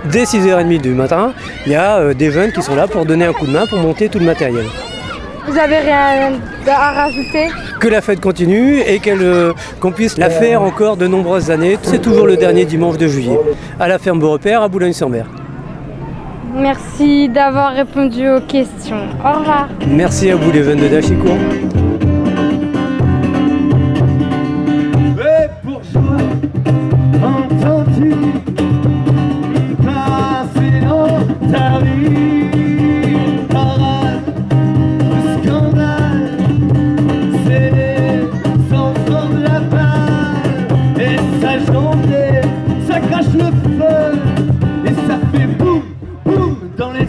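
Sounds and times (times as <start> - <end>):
cajon beat: 8.2 - 13.8, 18.9 - 47.0
man singing: 10.1 - 10.9, 11.6 - 13.5, 19.8 - 21.8, 25.2 - 26.4, 27.1 - 28.5, 29.7 - 34.4, 35.0 - 47.0
strummed acoustic guitar: 18.9 - 47.0.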